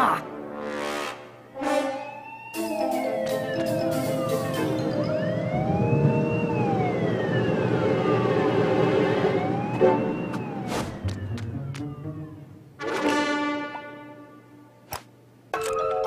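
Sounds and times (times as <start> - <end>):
cartoon police siren wailing: 1.5 - 12.5.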